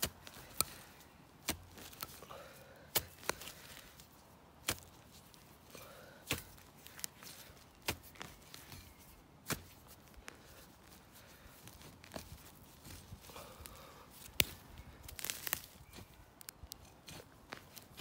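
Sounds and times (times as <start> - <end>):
hand tool striking soil: 0.0 - 4.0, 4.6 - 10.0, 14.3 - 18.0
loose dirt scattering: 0.0 - 10.7, 11.4 - 18.0.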